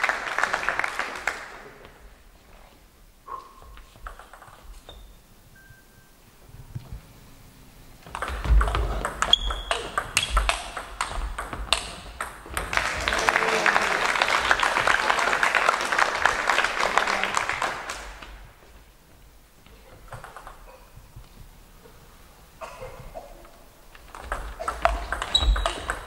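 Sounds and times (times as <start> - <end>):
audience applause: 0.0 - 2.0, 12.5 - 18.5
table tennis ball clicking: 4.0 - 4.7, 8.0 - 12.9, 24.0 - 26.0.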